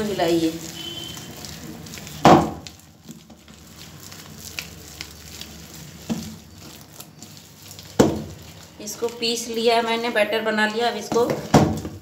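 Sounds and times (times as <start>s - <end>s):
batter squishing and stirring: 0.0s - 12.0s
hand slapping batter: 1.9s - 2.8s, 7.8s - 9.2s.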